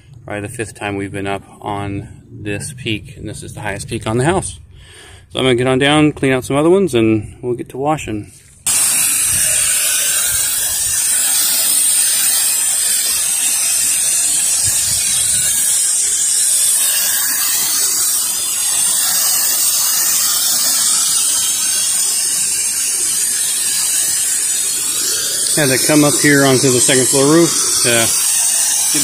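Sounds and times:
water spray hissing: 0:08.7 - 0:29.0.

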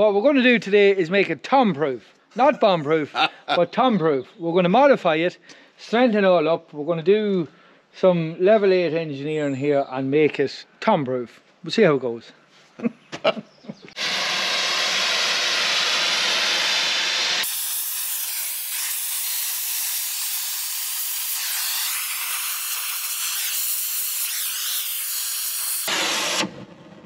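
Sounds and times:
gas torch flame hissing: 0:13.9 - 0:26.7.

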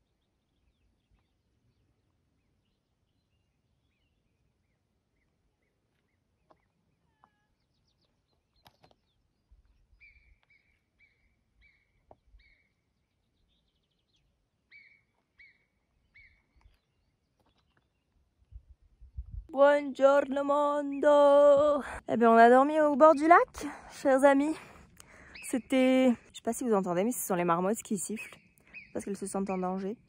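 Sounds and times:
distant animal chirps: 0:14.7 - 0:17.8, 0:28.1 - 0:30.0.

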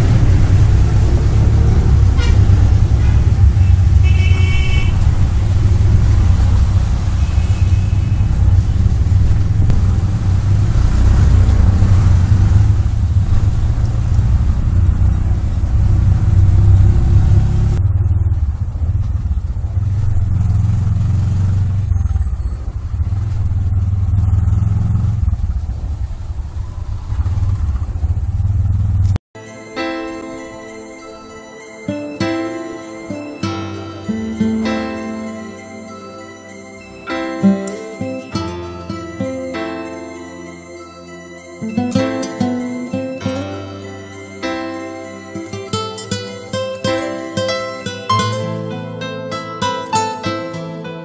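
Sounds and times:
horn toot: 0:00.0 - 0:09.2
auto-rickshaw engine rumble: 0:00.0 - 0:29.2.

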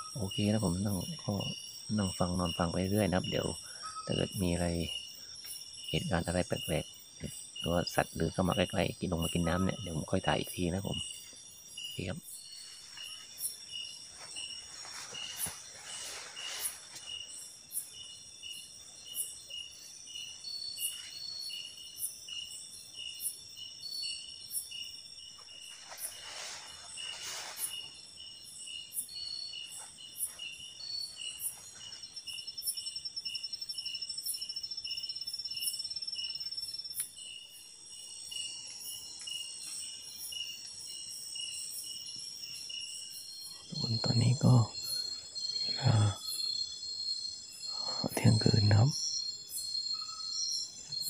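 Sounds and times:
night insects chorus: 0:00.0 - 0:51.0
pulsing insect chirp: 0:00.0 - 0:51.0
rustling: 0:12.6 - 0:17.4, 0:25.5 - 0:28.0.

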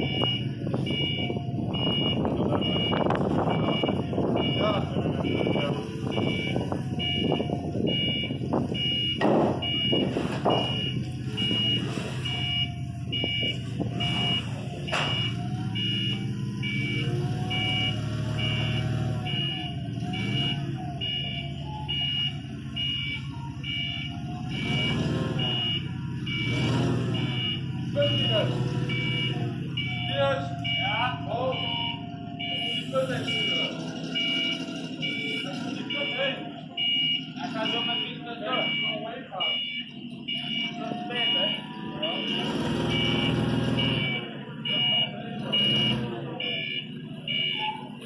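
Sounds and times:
forklift engine running: 0:00.0 - 0:48.0
two-tone reversing alarm beeps: 0:00.0 - 0:48.0
clunks: 0:08.6 - 0:12.4, 0:13.3 - 0:15.5.

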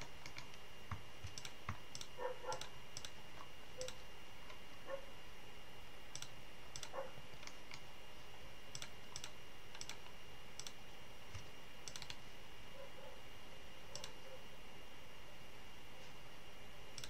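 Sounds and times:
computer mouse clicking: 0:00.0 - 0:04.6, 0:06.1 - 0:07.9, 0:08.7 - 0:12.2, 0:13.9 - 0:14.3
faint high whine: 0:00.0 - 0:17.0.

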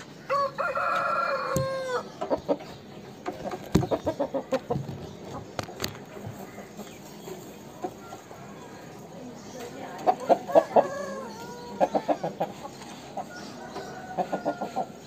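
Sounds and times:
chicken clucking: 0:00.0 - 0:15.0
rooster crowing: 0:00.3 - 0:02.0.

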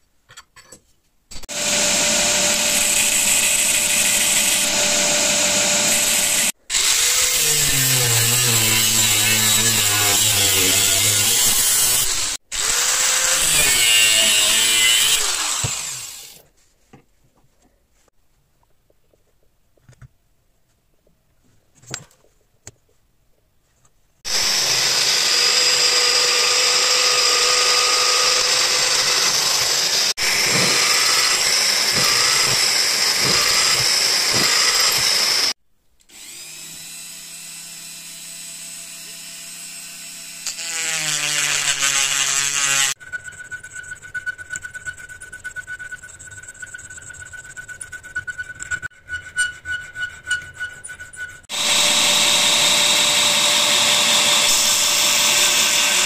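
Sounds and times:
drill boring through metal: 0:01.3 - 0:16.4, 0:24.3 - 0:43.2, 0:51.4 - 0:56.0
rotary tool whining: 0:01.3 - 0:16.4, 0:24.3 - 0:56.0
hand file rasping: 0:24.3 - 0:35.6, 0:40.4 - 0:56.0.

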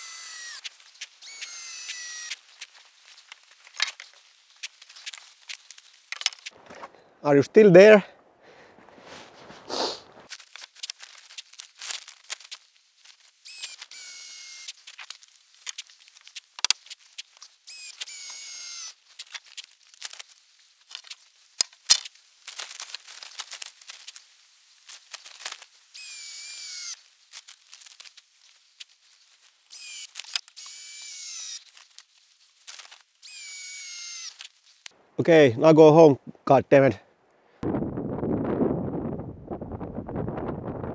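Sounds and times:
tarp rustling and scraping: 0:08.9 - 0:13.4, 0:19.2 - 0:25.8, 0:27.0 - 0:29.7.

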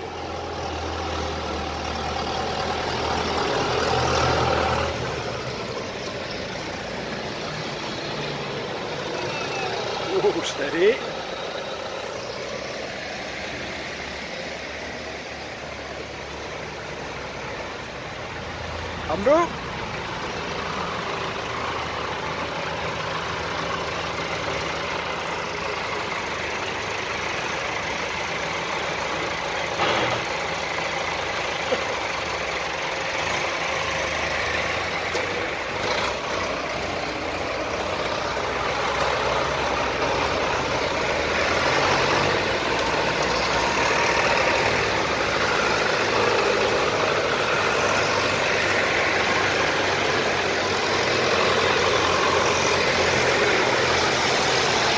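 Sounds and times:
tractor engines running: 0:00.0 - 0:54.9.

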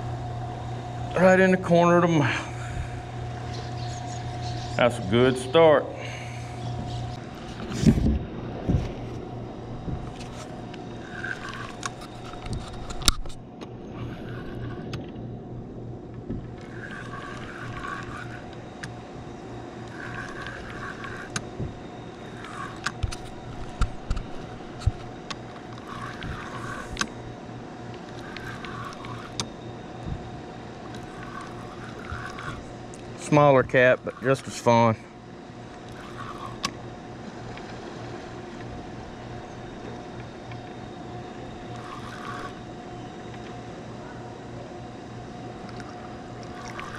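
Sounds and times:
steady hum: 0:00.0 - 0:46.9
fishing reel clicks and knocks: 0:10.1 - 0:13.4, 0:16.6 - 0:19.0, 0:19.8 - 0:21.5, 0:22.2 - 0:27.1, 0:27.9 - 0:29.5, 0:30.9 - 0:33.4, 0:35.8 - 0:36.8, 0:45.7 - 0:46.9.

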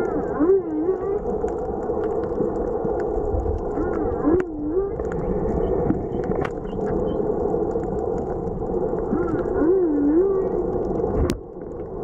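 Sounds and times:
underwater water rush: 0:00.0 - 0:12.0
sharp underwater clicks: 0:01.2 - 0:09.6.

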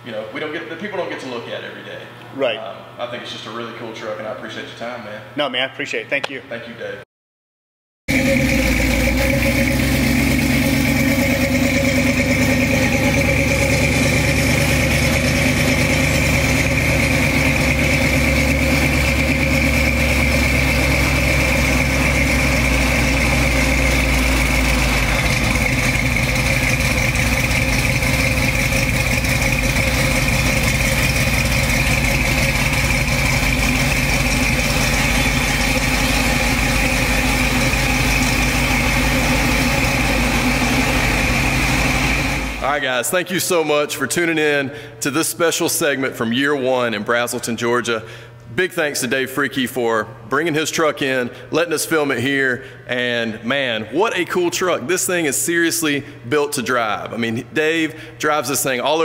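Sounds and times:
pickup engine idling: 0:08.1 - 0:42.8.

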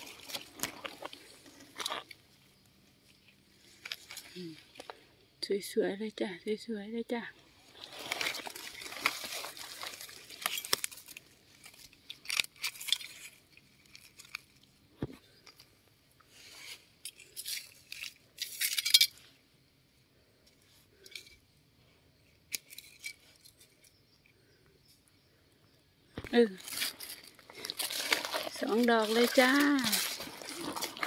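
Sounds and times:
rustling in dry leaf litter: 0:00.0 - 0:02.1, 0:07.4 - 0:14.8, 0:26.3 - 0:31.0
knife scraping soil: 0:16.3 - 0:18.5, 0:26.6 - 0:31.0.

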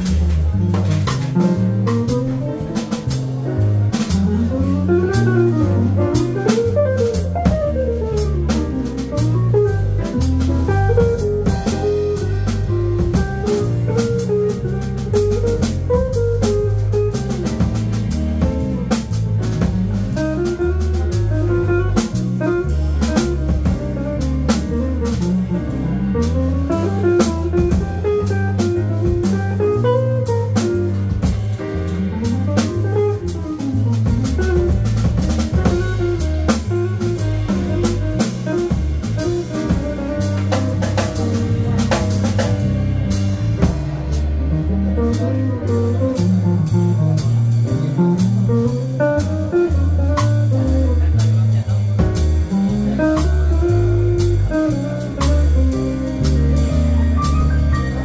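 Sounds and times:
drum kit cymbals: 0:00.0 - 0:58.0
electric bass line: 0:00.0 - 0:58.0
electric guitar melody: 0:47.8 - 0:51.1.

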